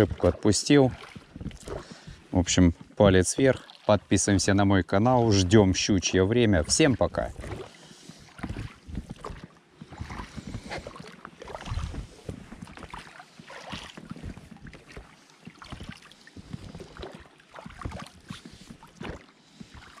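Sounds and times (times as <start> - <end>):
water splashing from oar strokes: 0.0 - 20.0
oars knocking: 5.1 - 20.0.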